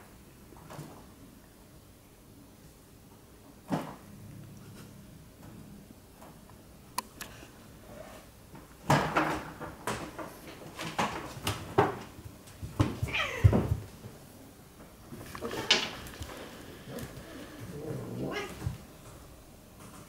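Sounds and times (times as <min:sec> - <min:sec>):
thumps and scuffs of fighting cats: 0:08.9 - 0:14.2
cat yowl: 0:18.0 - 0:18.6.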